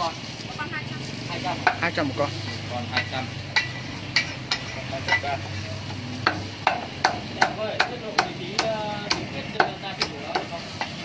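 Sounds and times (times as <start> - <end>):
cleaver chopping on wooden block: 6.2 - 11.0.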